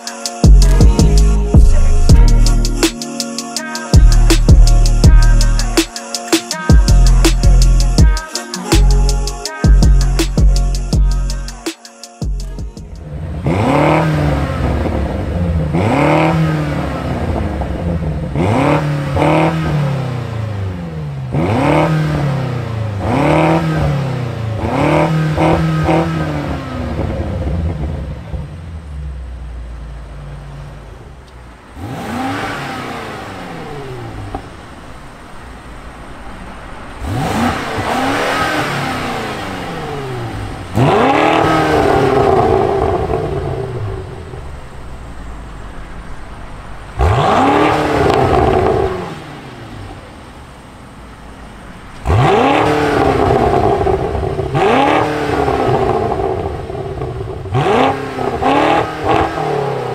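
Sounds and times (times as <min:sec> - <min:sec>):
car engine idling: 0:00.0 - 0:03.0, 0:04.0 - 0:05.9, 0:06.6 - 0:11.7, 0:12.3 - 0:59.9
car engine revving: 0:12.4 - 0:59.9.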